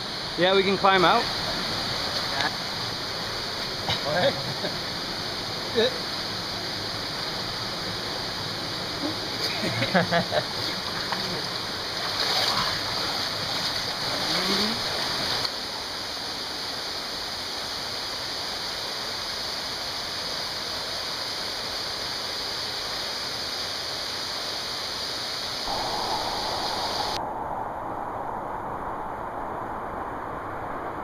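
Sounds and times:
stream and waterfall rushing: 0:00.0 - 0:31.0
water splashing: 0:10.3 - 0:15.5.

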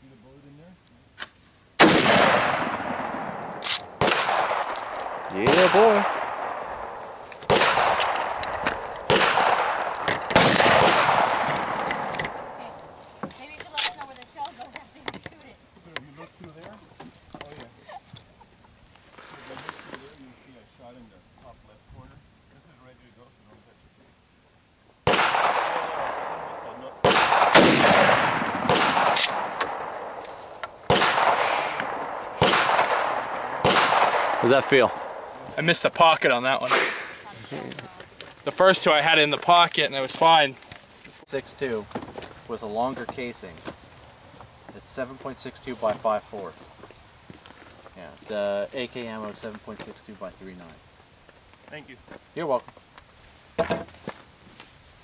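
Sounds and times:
echoing gunshots: 0:01.8 - 0:13.0, 0:25.0 - 0:35.8
light metallic clinks: 0:03.6 - 0:05.2, 0:29.2 - 0:30.7.

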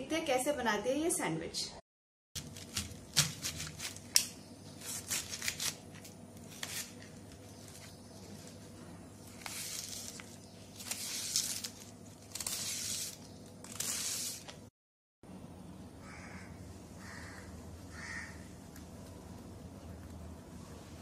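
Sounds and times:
knife slicing cabbage: 0:02.4 - 0:07.1, 0:09.3 - 0:14.6.

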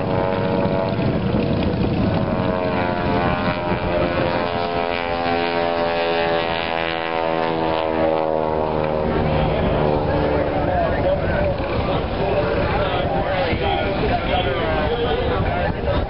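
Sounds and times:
propeller plane engine drone: 0:00.0 - 0:16.0.

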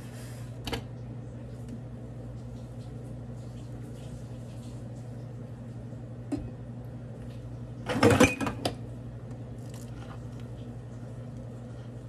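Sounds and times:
steady low hum: 0:00.0 - 0:12.0
dishes clattering in a metal sink: 0:07.8 - 0:08.8.

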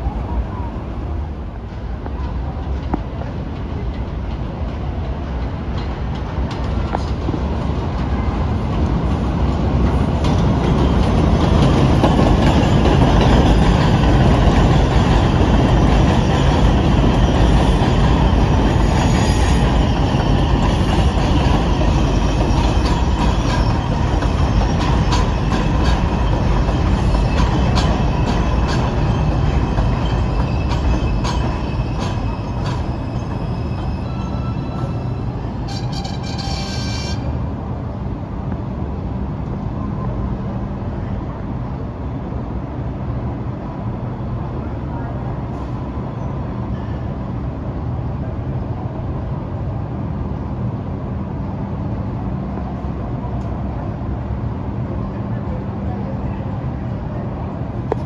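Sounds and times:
train wheels rumbling: 0:00.0 - 0:44.0
rail-joint clicks: 0:02.0 - 0:09.1, 0:19.6 - 0:37.3
high wheel squeal: 0:17.9 - 0:37.4.

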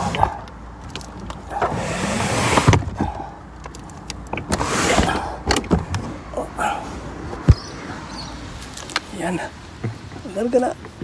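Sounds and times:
handling clicks and knocks: 0:00.0 - 0:01.8, 0:02.6 - 0:06.2
rustle: 0:00.0 - 0:11.0.

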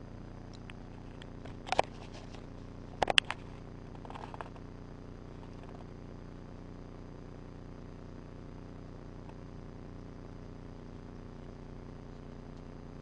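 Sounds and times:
low hum of recording noise: 0:00.0 - 0:13.0.

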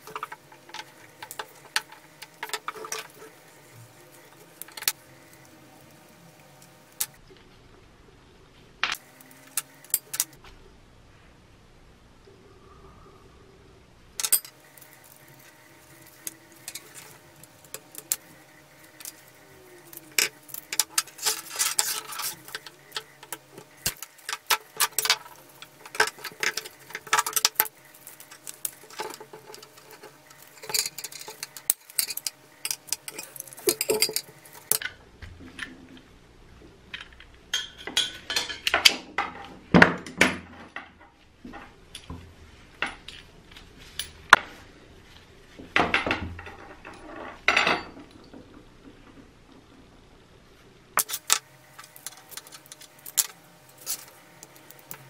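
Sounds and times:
brass fittings clinking and scraping: 0:00.0 - 0:05.5, 0:08.9 - 0:10.4, 0:14.2 - 0:34.9, 0:45.8 - 0:49.2, 0:51.0 - 0:55.0.

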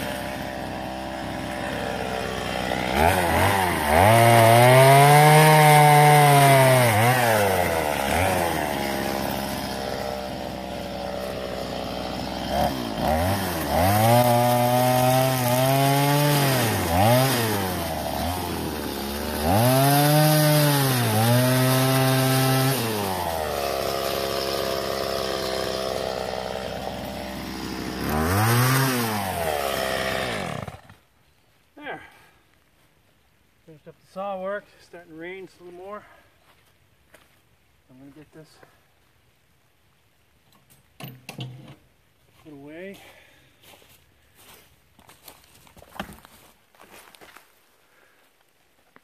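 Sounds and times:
chainsaw revving and idling: 0:00.0 - 0:31.1.

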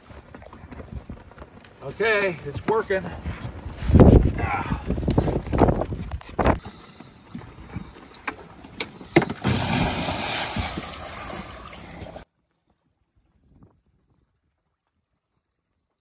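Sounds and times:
big splash and churning water: 0:08.5 - 0:12.2.

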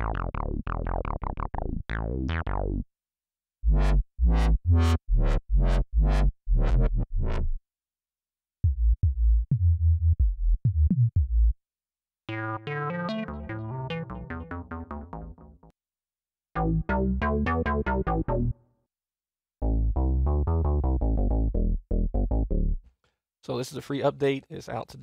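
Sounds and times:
synth bass notes: 0:00.0 - 0:02.9, 0:03.6 - 0:07.6, 0:12.3 - 0:15.7, 0:16.6 - 0:18.6, 0:19.6 - 0:22.8.

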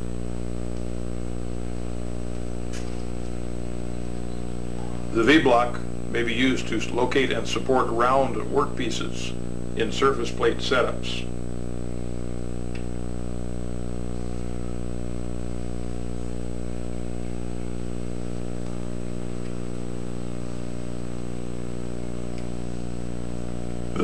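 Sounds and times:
electrical hum: 0:00.0 - 0:24.0.

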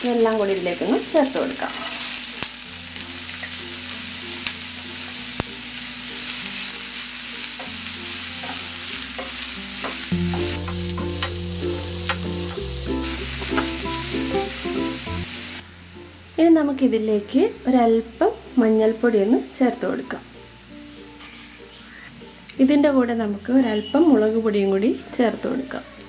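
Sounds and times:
food sizzling in hot oil: 0:00.0 - 0:15.6
soft background music: 0:00.0 - 0:26.0.

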